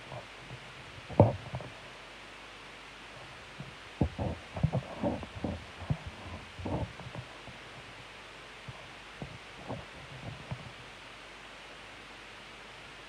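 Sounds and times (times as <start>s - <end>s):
soft low thumps and rumbles: 3.6s - 8.0s.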